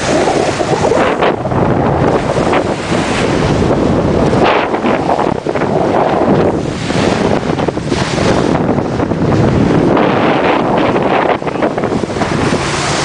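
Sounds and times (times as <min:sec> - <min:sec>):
sea water rushing along boat: 0:00.0 - 0:13.0
wind buffeting microphone: 0:00.0 - 0:13.0.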